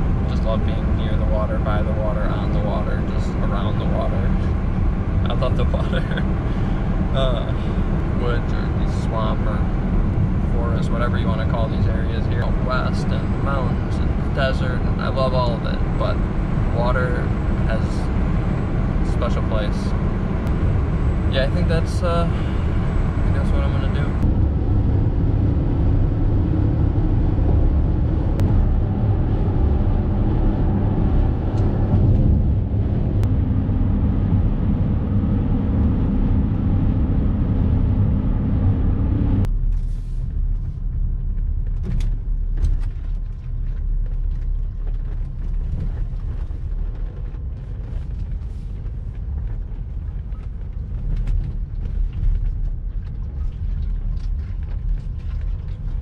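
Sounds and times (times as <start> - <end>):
car cabin road and engine rumble: 0.0 - 56.0
tyres crackling on dirt road: 39.4 - 56.0.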